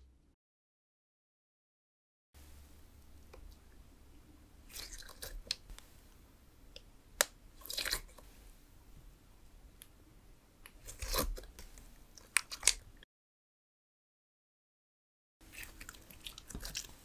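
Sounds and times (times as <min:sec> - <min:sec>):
slime squishing and crackling: 0:10.7 - 0:12.9, 0:15.4 - 0:17.0.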